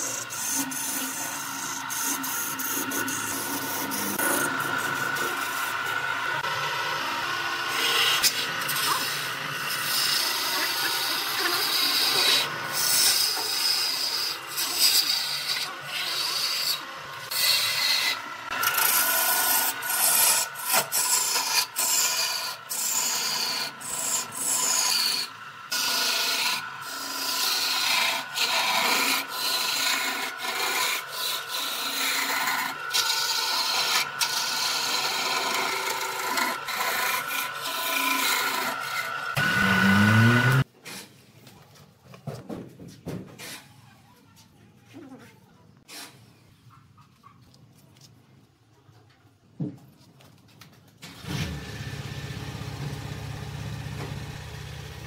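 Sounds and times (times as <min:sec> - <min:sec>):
lathe tool cutting wood: 0:00.0 - 0:40.7.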